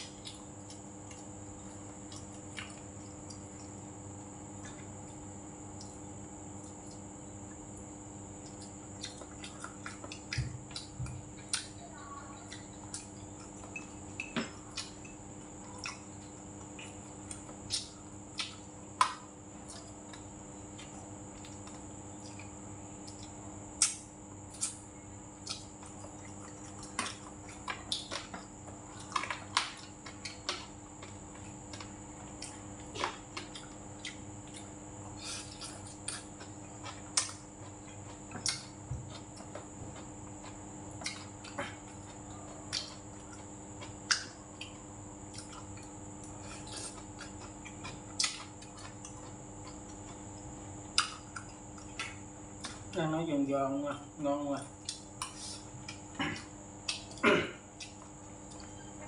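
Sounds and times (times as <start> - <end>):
wet chewing mouth sounds: 7.8 - 53.0.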